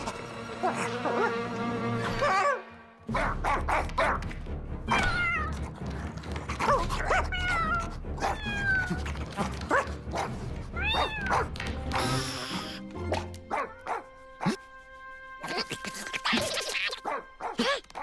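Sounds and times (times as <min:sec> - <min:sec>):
background music: 0:00.0 - 0:18.0
cartoon kitten meowing: 0:04.9 - 0:05.5.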